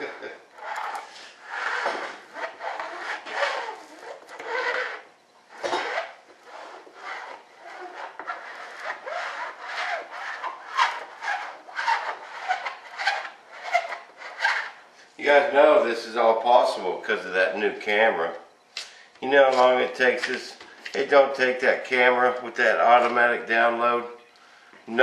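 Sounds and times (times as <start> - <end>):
hand tool rubbing fiberglass cloth: 0.0 - 14.8.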